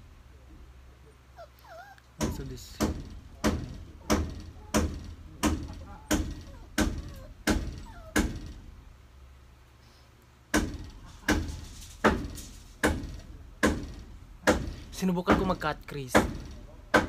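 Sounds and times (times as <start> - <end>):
heavy ringing knocks: 2.2 - 8.8, 10.5 - 17.0.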